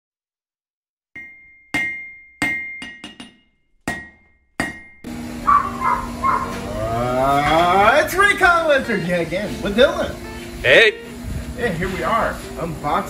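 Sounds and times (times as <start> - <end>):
hammer clanging on anvil: 1.2 - 5.1.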